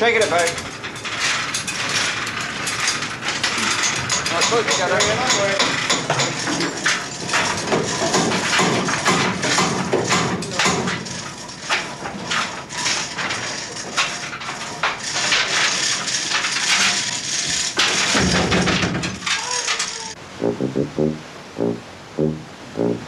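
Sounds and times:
clatter of knocks and bangs: 0:00.3 - 0:19.8
steady loud noise: 0:20.2 - 0:23.0
heavy low thump: 0:20.4 - 0:23.0.

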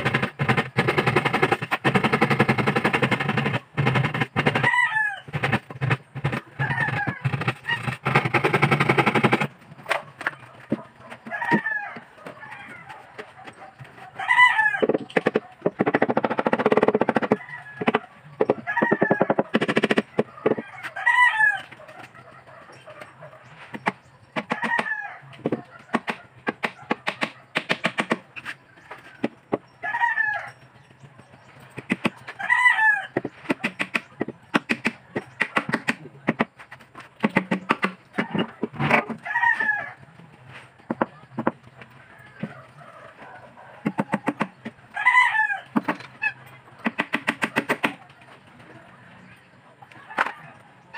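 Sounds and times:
knocking and rasping on plywood: 0:00.0 - 0:04.7, 0:05.3 - 0:09.5, 0:14.8 - 0:20.6, 0:33.2 - 0:39.2, 0:40.9 - 0:41.6
chickens calling: 0:00.0 - 0:50.9.

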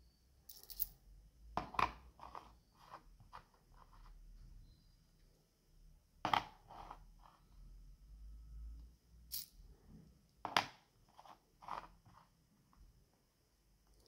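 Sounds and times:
coins clinking: 0:00.5 - 0:01.0, 0:09.3 - 0:09.6.

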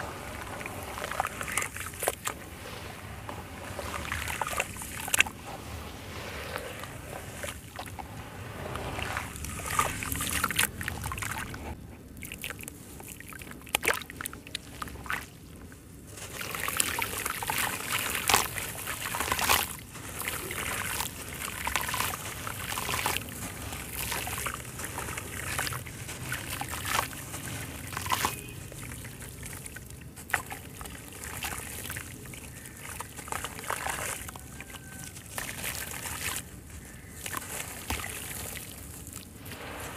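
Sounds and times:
hands sloshing in muddy water: 0:00.0 - 0:39.9
wet grit trickling and splashing: 0:00.0 - 0:39.9.

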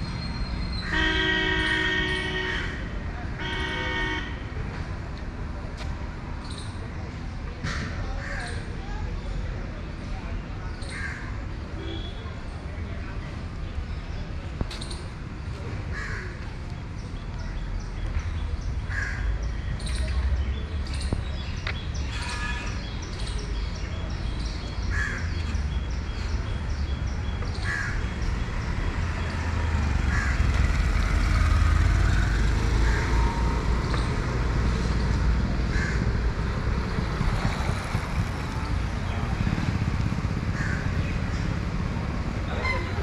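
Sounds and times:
street traffic rumble: 0:00.0 - 0:43.0
crows cawing: 0:30.1 - 0:30.4, 0:35.7 - 0:36.0, 0:40.6 - 0:40.9.

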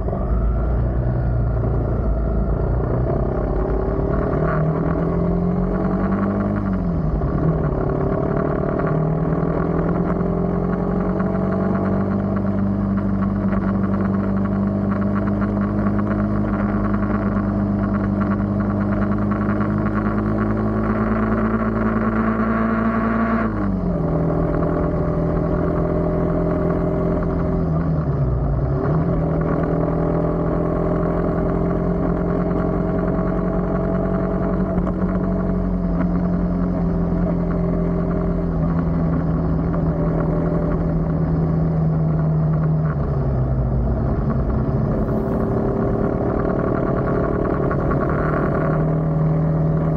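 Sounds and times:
road noise: 0:00.0 - 0:49.9
vehicle engine running: 0:00.0 - 0:49.9.

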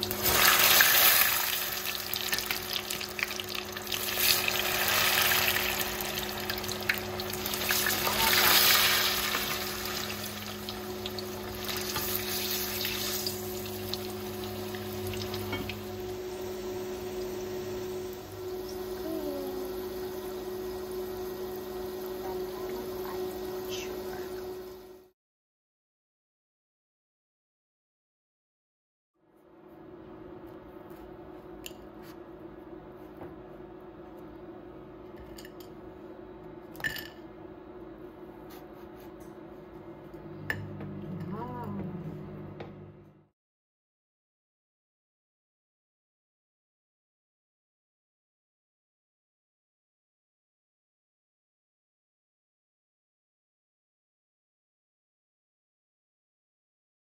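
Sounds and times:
deep-frying sizzle and bubbling: 0:00.0 - 0:24.9
low steady hum: 0:00.0 - 0:25.1, 0:29.4 - 0:43.3.

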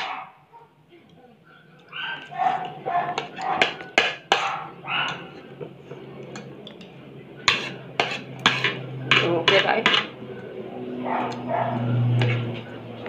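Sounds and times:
cutlery clinking on a plate: 0:01.8 - 0:10.2, 0:12.1 - 0:12.6.

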